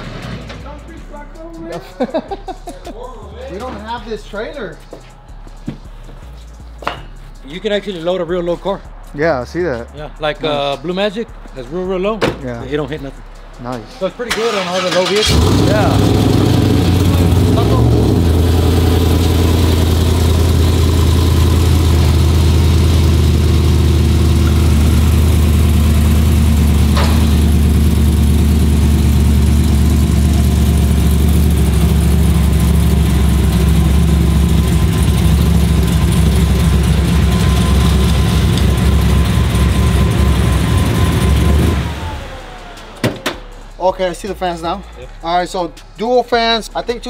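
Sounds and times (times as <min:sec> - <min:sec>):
truck engine idling: 0:14.8 - 0:43.8.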